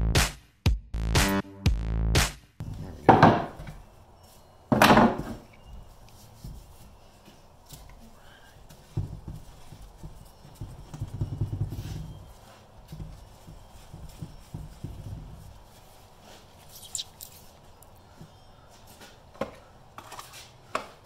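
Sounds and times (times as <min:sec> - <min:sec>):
knocks of parts on a wooden workbench: 0:02.7 - 0:03.8, 0:04.7 - 0:05.4.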